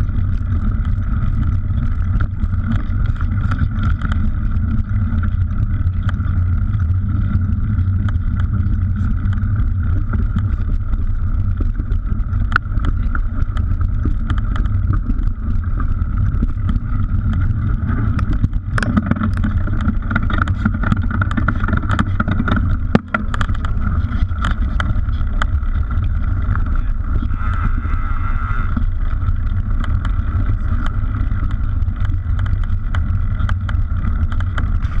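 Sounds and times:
bike rattles and knocks: 0.0s - 35.0s
wind and riding rush: 0.0s - 35.0s.

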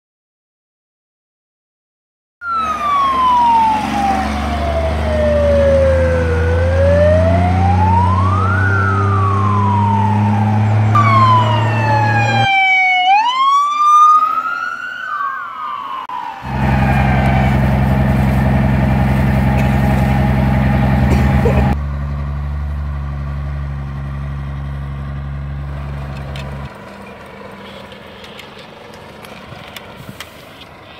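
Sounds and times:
fire truck siren wailing: 2.4s - 21.8s
higher siren rising in pitch: 2.4s - 21.8s
truck engine running: 16.4s - 30.9s.

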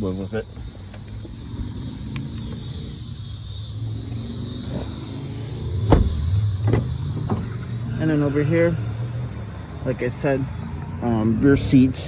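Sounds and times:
cicada buzz: 0.0s - 12.0s
low vehicle rumble: 0.0s - 12.0s
car door shutting: 5.8s - 7.6s.

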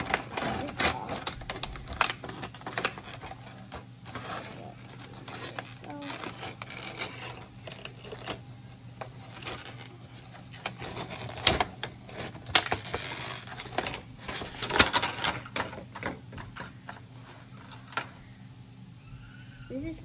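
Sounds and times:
plastic snapping: 0.0s - 8.4s
plastic packaging crackling: 0.0s - 18.1s.

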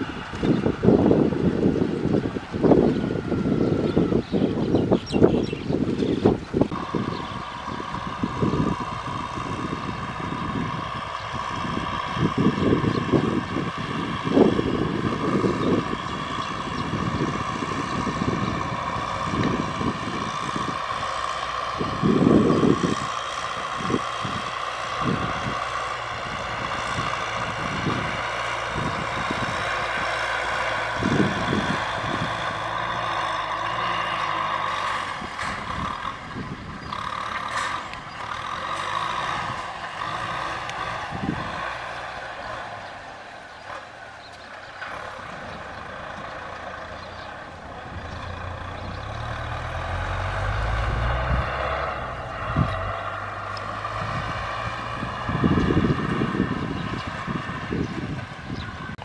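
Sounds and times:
tractor diesel engine running: 0.0s - 59.0s
low thumps and rumbles: 45.3s - 59.0s.

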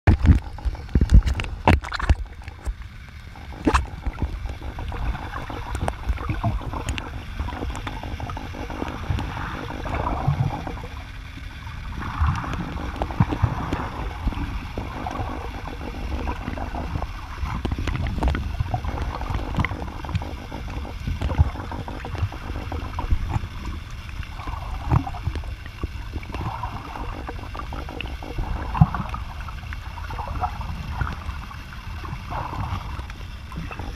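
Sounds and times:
sharp clicks and knocks: 0.1s - 2.8s, 16.2s - 24.0s
underwater low rumble: 0.1s - 33.9s
water sloshing: 0.1s - 33.9s.

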